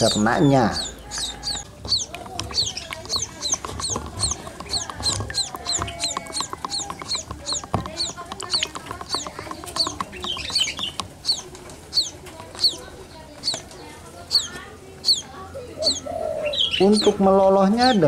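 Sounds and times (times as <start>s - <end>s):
chicks chirping: 0.0s - 18.0s
stick clicking in plastic cup: 1.2s - 11.3s.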